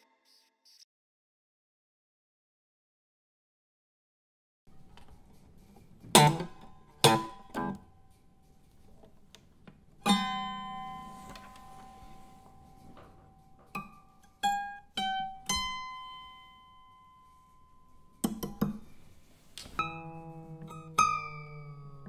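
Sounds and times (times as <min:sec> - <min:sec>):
plucked string notes: 0:06.1 - 0:07.8, 0:10.0 - 0:17.1, 0:19.8 - 0:22.0
plucked string chord: 0:19.8 - 0:22.0.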